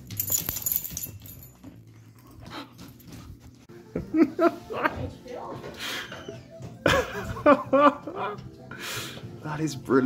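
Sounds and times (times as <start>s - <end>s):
dogs panting and snuffling: 0.6s - 3.9s.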